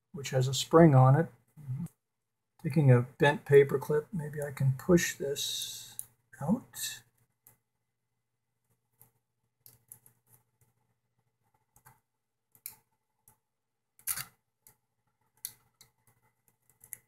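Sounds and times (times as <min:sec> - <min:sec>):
paper clip clicking and scraping: 0:14.0 - 0:14.4.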